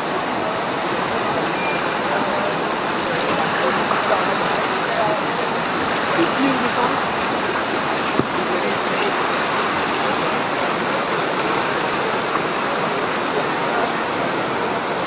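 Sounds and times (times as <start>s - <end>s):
whitewater rushing through rapids: 0.0s - 15.0s.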